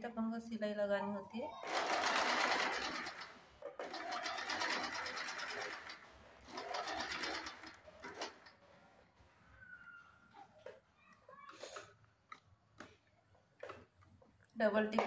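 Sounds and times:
sewing machine needle clattering: 0:01.6 - 0:08.6.

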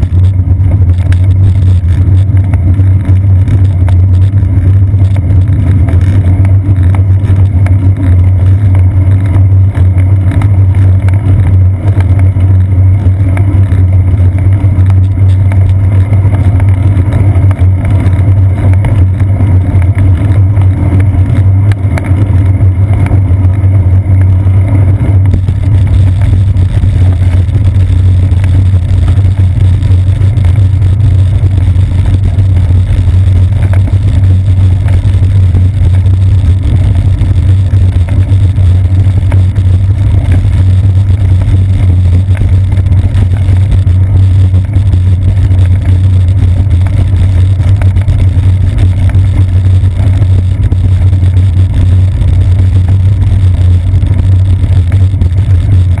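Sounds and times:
bicycle road vibration: 0:00.0 - 0:56.0
wind buffeting rumble: 0:00.0 - 0:56.0.

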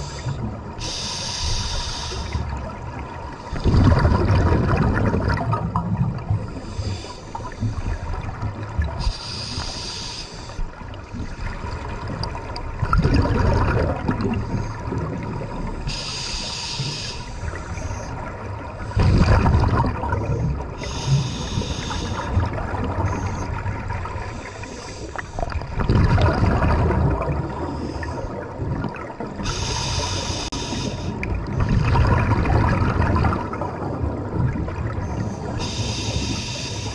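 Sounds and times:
regulator inhale hiss: 0:00.0 - 0:02.6, 0:06.5 - 0:08.1, 0:09.0 - 0:10.8, 0:15.9 - 0:18.1, 0:20.8 - 0:22.4, 0:24.3 - 0:25.5, 0:29.4 - 0:31.3, 0:35.4 - 0:36.9
exhaust bubbles rumbling: 0:03.5 - 0:06.6, 0:11.6 - 0:15.8, 0:19.0 - 0:20.8, 0:25.4 - 0:29.4, 0:31.2 - 0:35.6.

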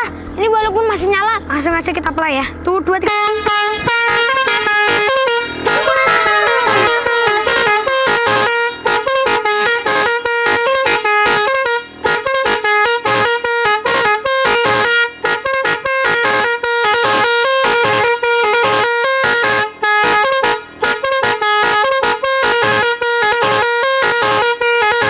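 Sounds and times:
air horn playing a tune: 0:03.1 - 0:25.0.

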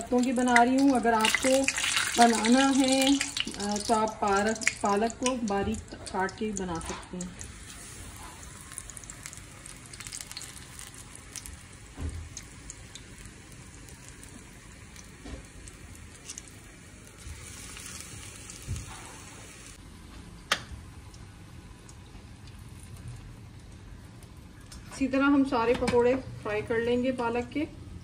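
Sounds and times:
oil sizzling and crackling: 0:00.0 - 0:19.8.

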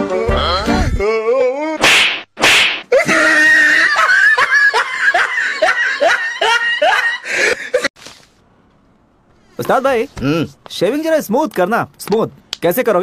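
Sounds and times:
person laughing: 0:02.9 - 0:07.9.

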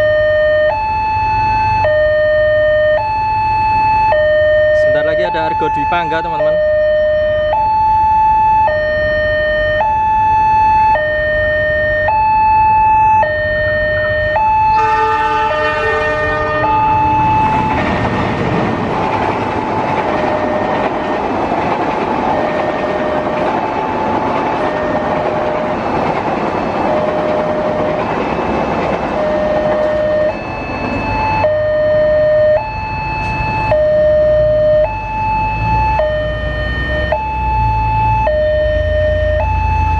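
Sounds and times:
ambulance two-tone siren: 0:00.0 - 0:18.3, 0:19.1 - 0:39.9
train coaches rumbling past: 0:13.2 - 0:34.4
locomotive horn: 0:14.0 - 0:17.7.

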